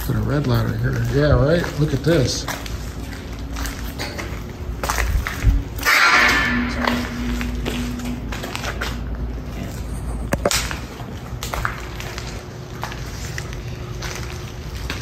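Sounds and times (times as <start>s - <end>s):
footsteps crunching over debris: 0.0s - 15.0s
low steady rumble: 0.0s - 15.0s.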